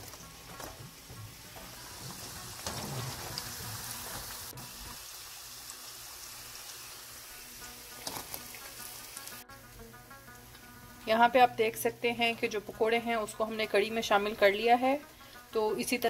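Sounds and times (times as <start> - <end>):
food sizzling in hot oil: 0.0 - 10.1.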